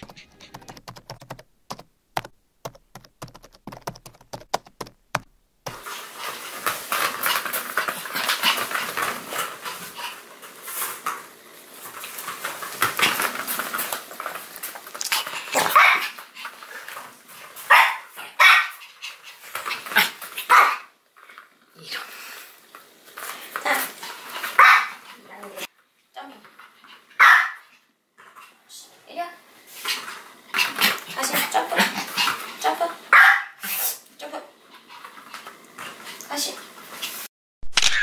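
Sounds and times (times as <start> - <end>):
rapid sharp clicks: 0.0 - 5.8
small dog barking and yipping: 15.5 - 16.2, 17.7 - 18.8, 20.0 - 20.9, 24.6 - 25.0, 27.2 - 27.7, 33.1 - 33.7.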